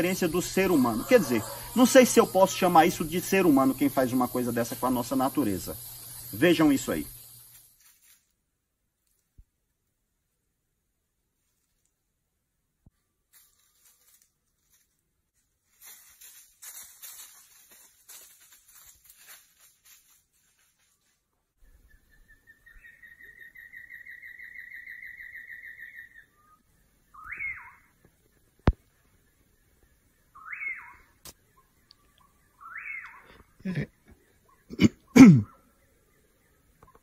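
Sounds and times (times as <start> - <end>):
animal calls: 0.0 - 3.3, 30.4 - 35.8.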